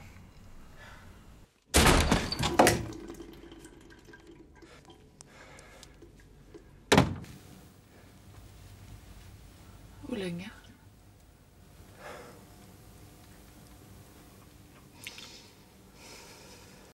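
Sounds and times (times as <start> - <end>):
door thuds and rattling: 1.7 - 2.8, 6.9 - 7.3.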